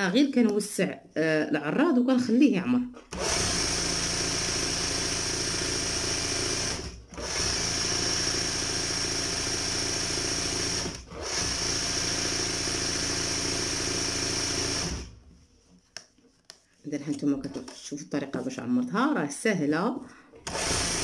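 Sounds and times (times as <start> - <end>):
electric sewing machine running: 3.1 - 15.2, 20.4 - 21.0.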